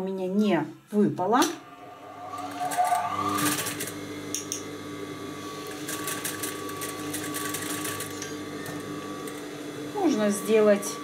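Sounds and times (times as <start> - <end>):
industrial sewing machine running: 2.3 - 4.0, 5.4 - 10.2.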